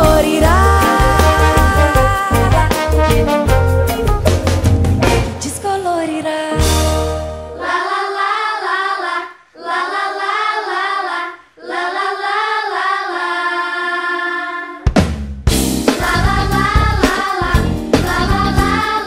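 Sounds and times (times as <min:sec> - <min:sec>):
high voices singing wordlessly: 0:00.0 - 0:02.9, 0:07.5 - 0:14.9, 0:15.9 - 0:19.0
band with drums: 0:00.0 - 0:05.6, 0:06.5 - 0:07.4, 0:14.8 - 0:19.0.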